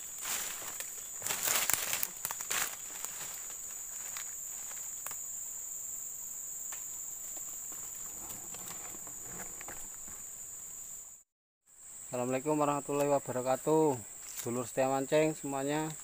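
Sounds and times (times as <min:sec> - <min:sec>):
footsteps on dry leaves: 0:00.0 - 0:05.1
insect chorus droning: 0:00.0 - 0:16.0.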